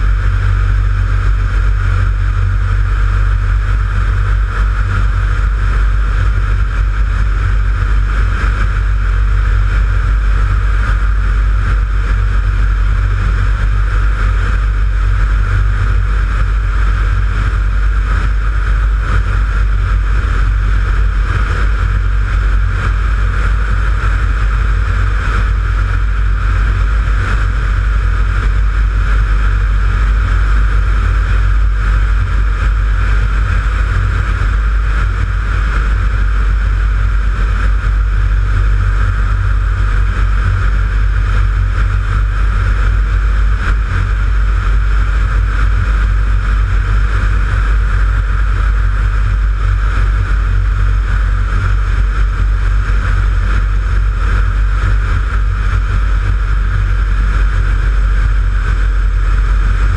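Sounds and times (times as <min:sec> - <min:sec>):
light aircraft engine and propeller: 0:00.0 - 0:59.9
wind rush on camera: 0:00.0 - 0:59.9.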